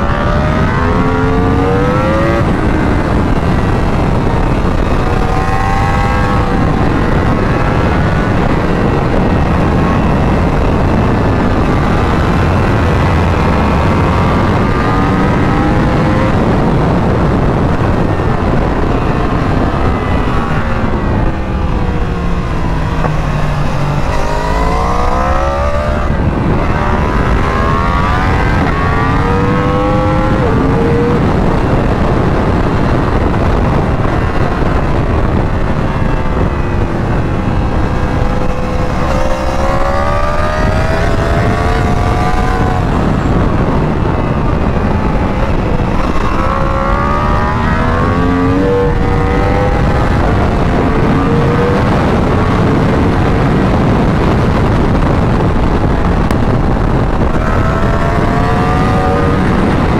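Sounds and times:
heavy wind rush: 0:00.0 - 0:59.9
motorcycle engine at speed: 0:00.0 - 0:59.9.

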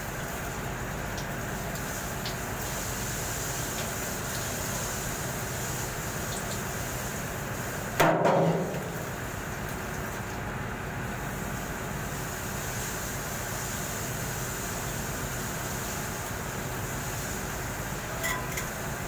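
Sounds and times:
sharp metal knock: 0:08.0 - 0:08.8
steady machine hum: 0:13.2 - 0:19.0.

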